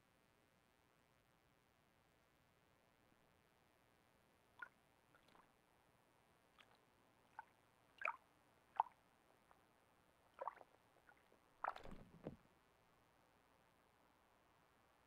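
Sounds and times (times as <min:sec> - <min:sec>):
owl splashing in water: 0:04.6 - 0:05.5, 0:06.5 - 0:09.0, 0:10.3 - 0:12.4.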